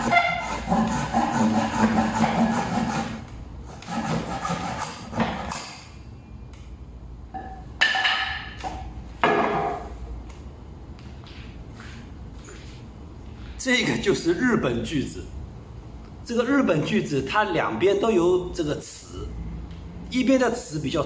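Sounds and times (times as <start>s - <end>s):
hand saw cutting wood: 0.0s - 5.7s.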